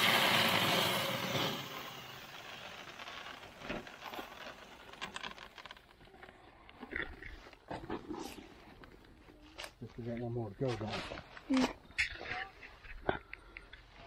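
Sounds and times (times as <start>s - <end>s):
corn pouring into plastic barrel: 0.0s - 7.5s
sack rustling and crinkling: 2.6s - 6.3s.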